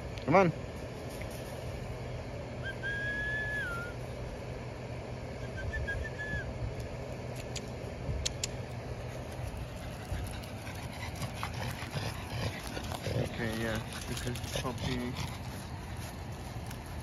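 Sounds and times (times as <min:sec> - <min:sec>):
steady low hum: 0:00.0 - 0:17.0
person whistling: 0:02.6 - 0:04.0, 0:05.5 - 0:06.5.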